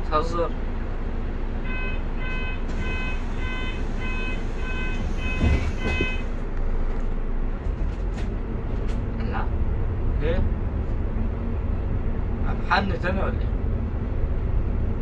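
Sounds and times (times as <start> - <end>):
bus engine and road rumble: 0.0 - 15.0
bus warning beeper: 1.6 - 6.4
thump: 5.3 - 6.2.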